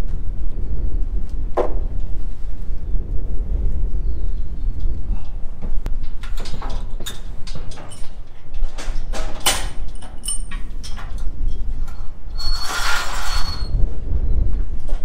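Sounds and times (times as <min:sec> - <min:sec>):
wind rumble on microphone: 0:00.0 - 0:15.0
steel gates clanking and rattling: 0:05.9 - 0:13.8
metal gate scraping with squeal: 0:11.8 - 0:13.8.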